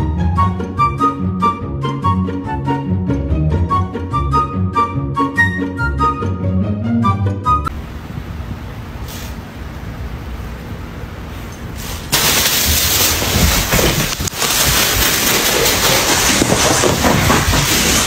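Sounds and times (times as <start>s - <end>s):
plastic bag rustling: 12.0s - 18.0s.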